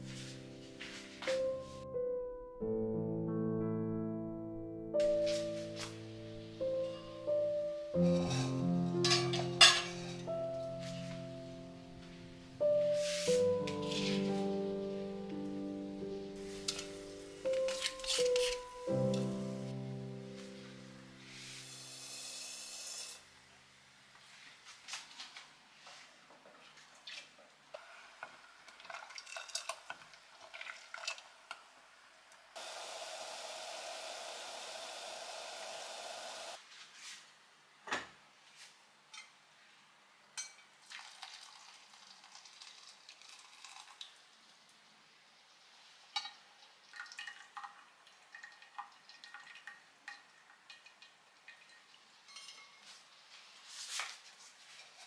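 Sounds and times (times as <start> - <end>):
kitchenware clinks and taps: 8.0 - 10.3, 49.3 - 53.0
spoon stirring in saucepan: 8.0 - 10.4, 26.7 - 31.3, 46.2 - 53.0
spoon scraping pot: 17.5 - 18.7
syrup boiling hiss: 21.2 - 23.3, 27.8 - 36.6.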